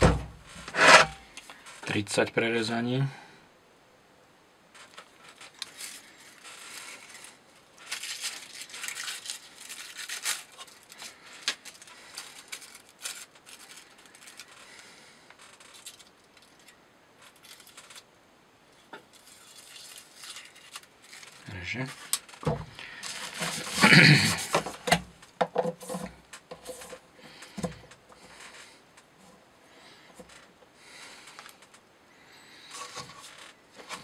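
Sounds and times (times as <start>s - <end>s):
paper tissue rustling: 4.8s - 18.1s, 19.0s - 25.0s, 32.5s - 34.0s.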